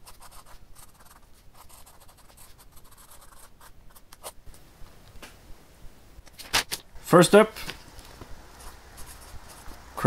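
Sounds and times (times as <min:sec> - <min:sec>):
pen scratching on paper: 0:00.0 - 0:04.4, 0:08.6 - 0:09.8.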